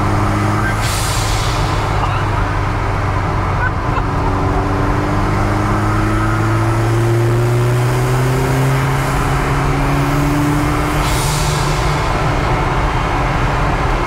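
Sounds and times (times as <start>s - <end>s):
hissing rush: 0.5s - 3.8s, 10.7s - 13.2s.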